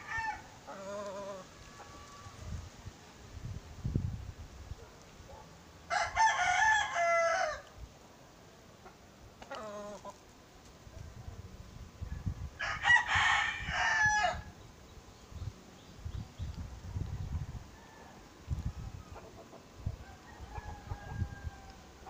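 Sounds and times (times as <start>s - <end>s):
rooster crowing: 0.0s - 2.4s, 5.9s - 7.7s, 12.6s - 14.5s, 17.5s - 18.3s, 20.0s - 22.0s
short faint rooster call: 20.0s - 22.0s.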